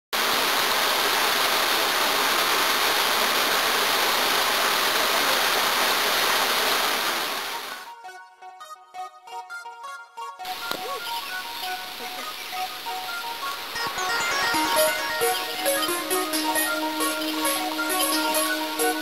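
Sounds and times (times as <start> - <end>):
running water rushing: 0.2 - 7.9, 10.5 - 19.0.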